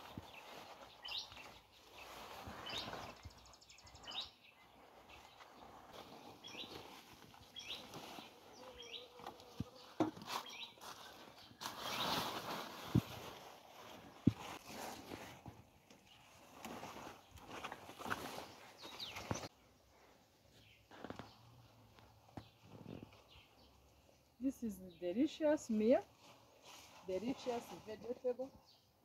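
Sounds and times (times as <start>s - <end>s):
leaves and vines rustling: 0.0s - 28.5s
bird chirping: 0.2s - 12.2s, 18.2s - 19.8s.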